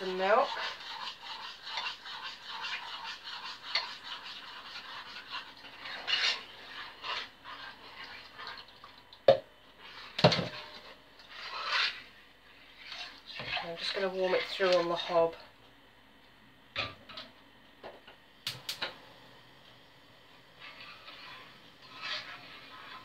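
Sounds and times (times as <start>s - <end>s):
spoon scraping a metal saucepan: 0.0s - 8.6s, 9.8s - 12.1s, 12.7s - 15.4s, 20.6s - 23.0s.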